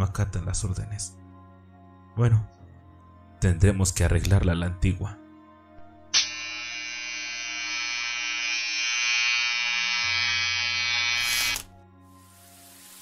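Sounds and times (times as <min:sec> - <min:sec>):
electric hair trimmer buzzing: 0:06.1 - 0:11.7.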